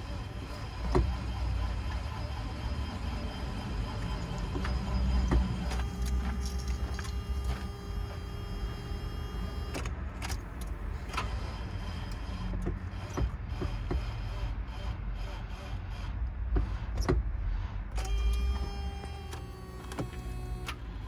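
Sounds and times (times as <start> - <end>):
steady whine: 0.0 - 14.0.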